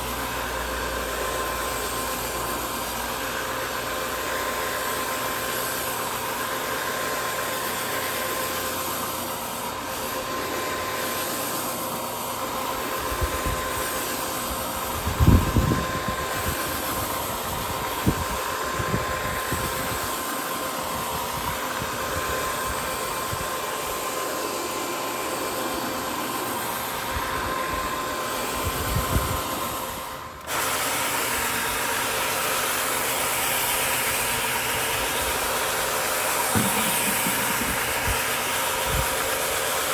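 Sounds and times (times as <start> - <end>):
rug scrubbing machine motor whine: 0.0 - 39.9.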